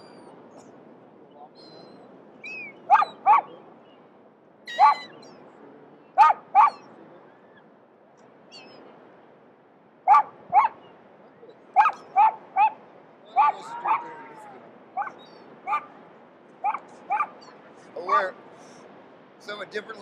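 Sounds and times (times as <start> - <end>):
short loud animal calls: 4.7 - 5.2.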